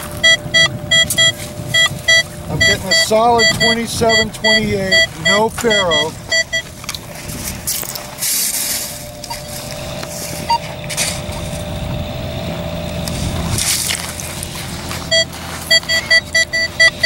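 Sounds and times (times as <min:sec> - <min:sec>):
metal detector beeping: 0:00.0 - 0:06.7, 0:08.9 - 0:11.5, 0:15.1 - 0:17.0
scoop scraping wet sand: 0:08.1 - 0:09.5.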